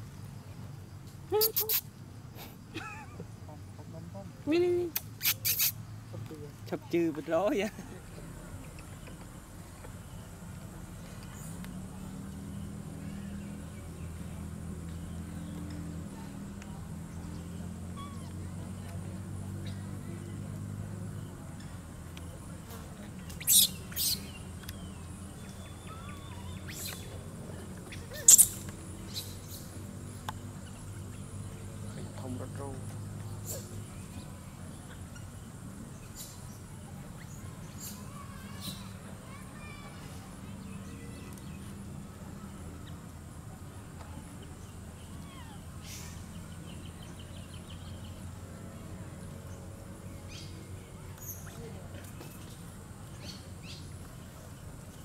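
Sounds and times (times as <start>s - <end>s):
high-pitched animal chirps: 1.3s - 1.9s, 4.9s - 5.8s, 23.4s - 24.2s, 27.9s - 29.4s
birds chirping: 2.6s - 55.0s
faint thin whistles: 5.2s - 5.8s.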